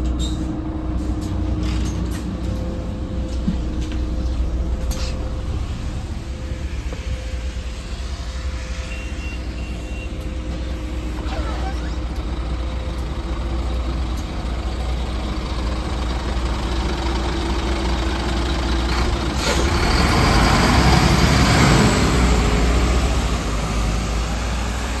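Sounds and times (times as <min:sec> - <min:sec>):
bus engine rumble: 0:00.0 - 0:25.0
air brake hissing: 0:19.4 - 0:19.8.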